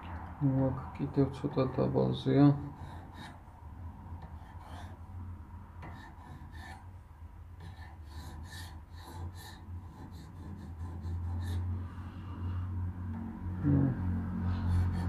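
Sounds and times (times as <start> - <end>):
steady low hum: 0.0 - 15.0
close breathing: 11.4 - 12.9.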